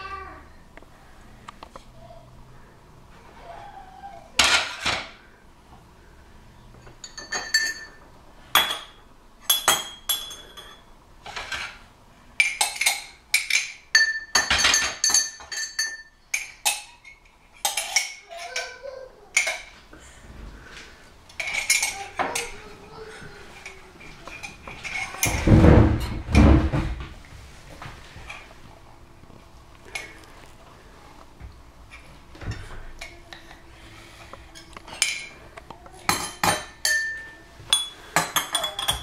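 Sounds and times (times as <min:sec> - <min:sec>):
dishes clinking and knocking: 0:04.4 - 0:05.2, 0:06.8 - 0:11.8, 0:12.4 - 0:18.8, 0:21.4 - 0:22.6, 0:23.4 - 0:27.1, 0:34.5 - 0:39.0.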